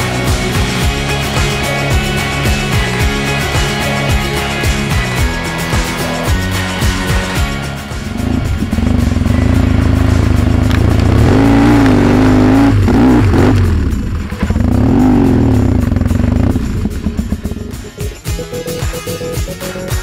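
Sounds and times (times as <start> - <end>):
motorcycle engine revving: 0.0 - 18.3
music track: 0.0 - 20.0.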